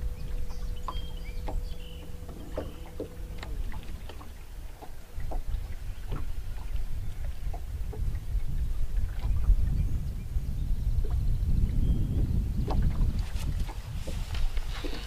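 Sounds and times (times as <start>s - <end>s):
faint steady hum: 0.0s - 9.1s
waves slapping boat hull: 0.0s - 10.3s, 10.9s - 15.0s
wind rumbling on microphone: 0.0s - 15.0s.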